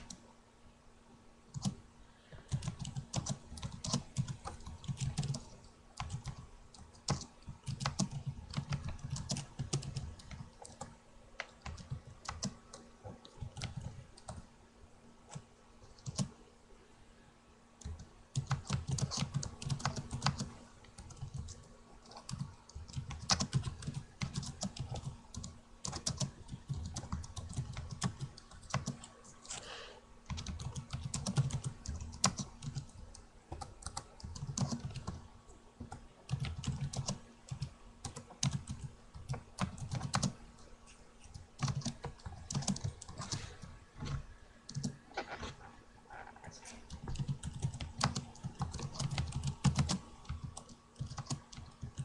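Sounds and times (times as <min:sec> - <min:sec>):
steady low hum: 0:00.0 - 0:52.0
keyboard typing: 0:01.5 - 0:14.5, 0:15.3 - 0:16.4, 0:17.8 - 0:45.6, 0:46.4 - 0:52.0.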